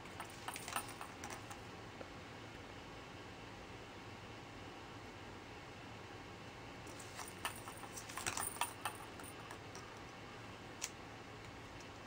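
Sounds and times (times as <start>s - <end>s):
plastic toy clicks and rattles: 7.2s - 9.8s.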